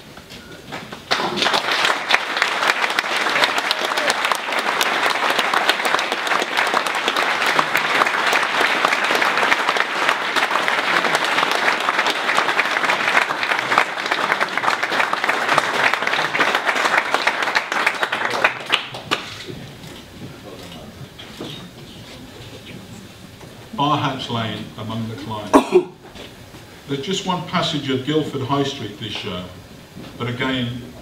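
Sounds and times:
audience applauding: 1.0 - 19.8.

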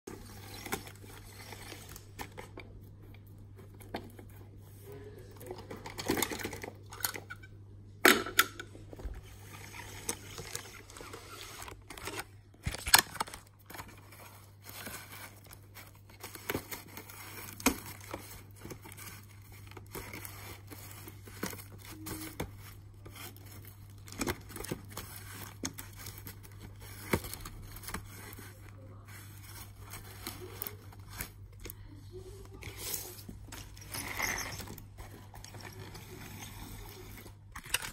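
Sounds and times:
paper rustling: 9.0 - 37.9.

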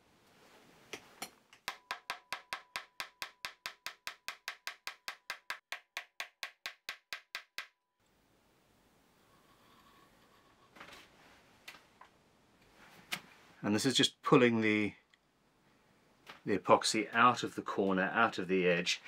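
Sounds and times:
small hammer tapping: 1.2 - 7.8.

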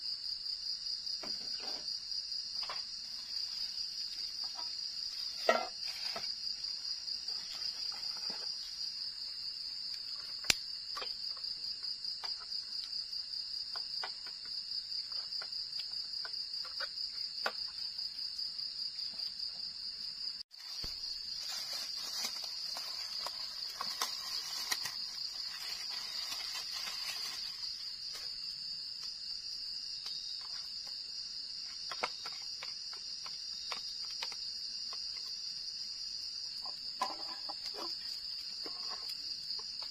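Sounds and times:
crickets trilling: 0.0 - 39.9
rustling: 2.6 - 9.1, 20.5 - 28.5.

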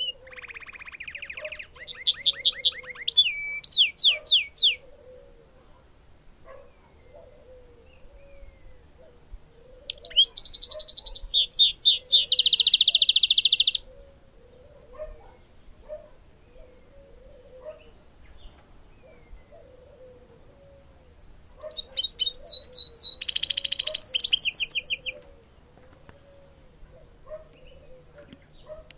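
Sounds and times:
songbird singing fast trills: 0.0 - 4.9, 6.7 - 19.6, 20.2 - 25.3.

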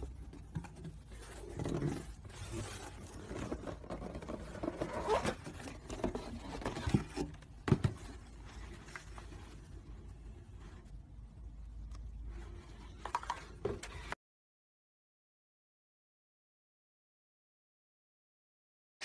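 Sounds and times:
cardboard box and paper rustling: 0.0 - 10.0.

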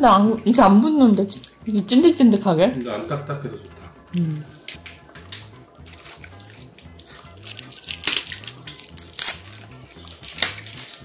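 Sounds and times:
background music with steady beat: 0.0 - 11.0
straw wrapper crinkling: 4.6 - 11.0.

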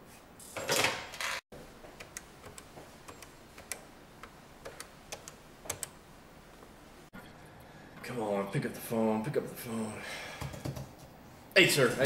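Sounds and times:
telephone buttons clicking: 2.0 - 6.0.

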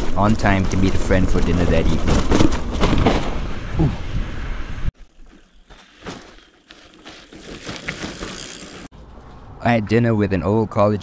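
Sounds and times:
bike tyres crunching over rock: 5.0 - 8.9
tyre rumble: 5.0 - 8.9.

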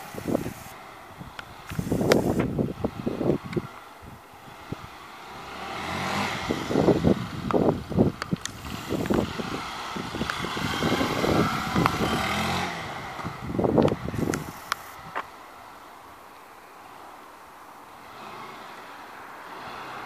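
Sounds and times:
wind gusts on microphone: 0.0 - 5.0, 5.8 - 15.3
motorcycle engine passing by: 4.5 - 15.1.

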